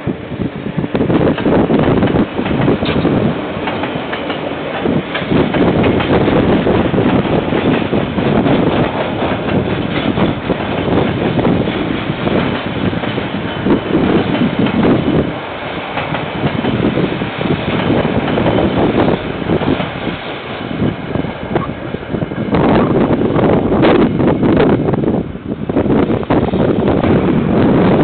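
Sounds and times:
freight train rolling past: 0.0s - 28.0s
wheel clacks: 1.3s - 20.5s.

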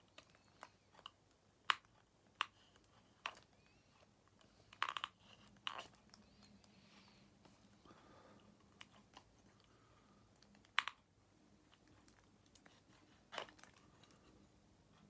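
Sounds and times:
small plastic clicks: 4.4s - 6.6s.

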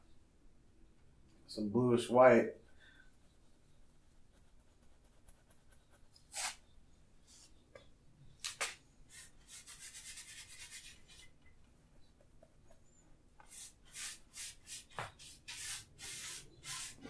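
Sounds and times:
paint brush strokes: 9.1s - 17.0s.

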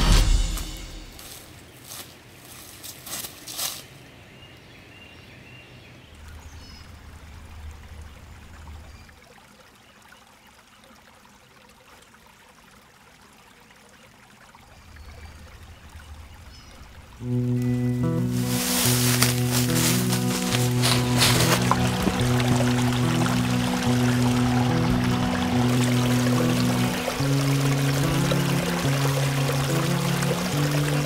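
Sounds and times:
footsteps on dry leaves: 0.0s - 4.0s, 18.0s - 23.0s
woodland ambience: 0.0s - 31.0s.

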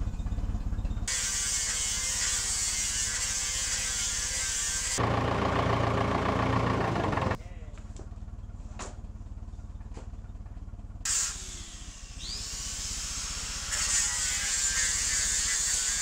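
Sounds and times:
forklift engine idling: 0.0s - 1.1s, 5.0s - 13.7s.

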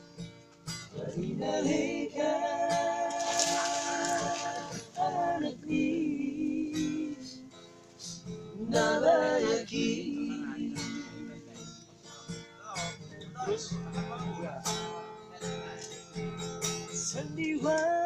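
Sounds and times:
acoustic guitar strumming: 0.0s - 18.0s
men singing along: 1.0s - 7.5s, 8.6s - 11.4s.

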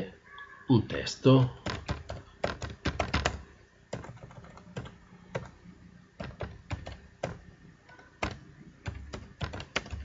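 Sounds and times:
keyboard keys clicking: 1.6s - 5.6s, 6.2s - 10.0s.

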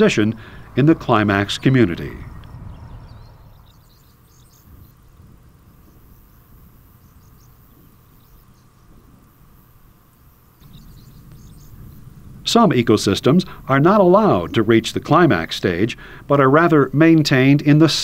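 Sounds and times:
low steady rumble: 0.0s - 18.0s.

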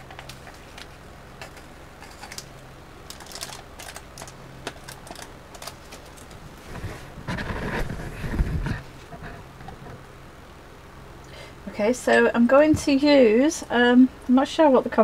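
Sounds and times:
rustling and bumps: 4.6s - 10.0s.

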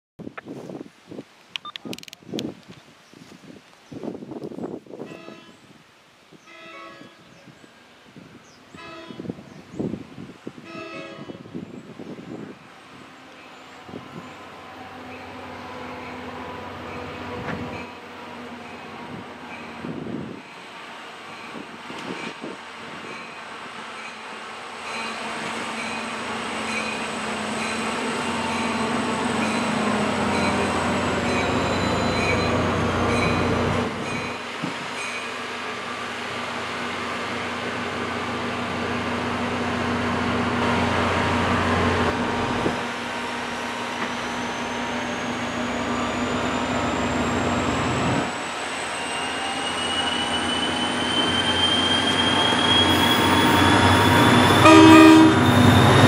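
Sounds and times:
locomotive horn: 5.0s - 5.6s, 6.5s - 7.3s, 8.8s - 9.3s, 10.7s - 11.4s, 52.9s - 56.0s
diesel locomotive engine running: 35.6s - 49.9s.

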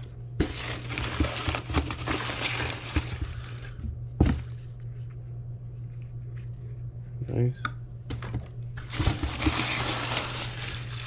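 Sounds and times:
shredded paper crinkling: 0.0s - 3.8s, 8.8s - 11.0s
low hum: 0.0s - 11.0s.

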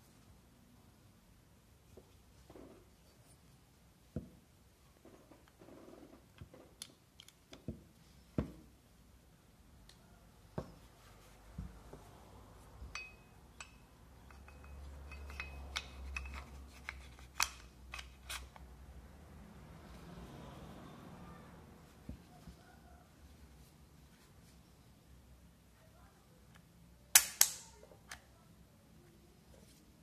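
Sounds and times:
pistol parts clicking: 6.8s - 7.6s, 12.9s - 18.7s, 27.1s - 28.3s
pistol slide clicking onto frame: 27.2s - 27.7s.

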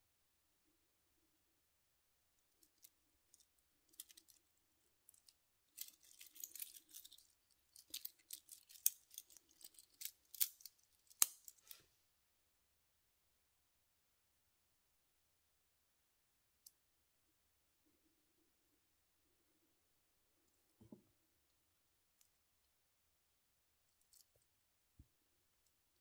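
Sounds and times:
metal watch bracelet jingling: 5.2s - 11.6s.

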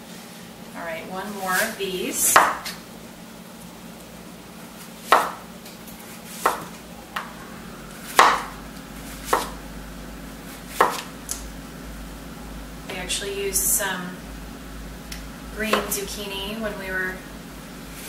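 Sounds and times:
knife slicing squash: 6.1s - 6.8s, 10.7s - 11.1s.

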